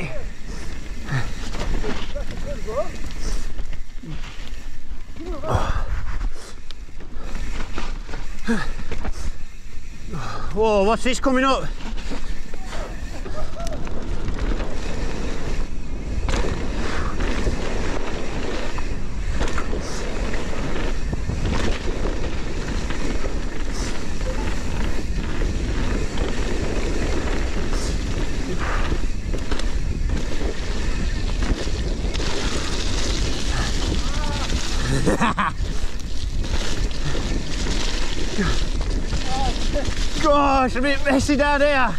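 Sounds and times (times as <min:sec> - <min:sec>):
tyres through mud: 0:00.0 - 0:41.9
bike knocks and rattles: 0:11.7 - 0:41.3
wind rushing over microphone: 0:12.2 - 0:41.3.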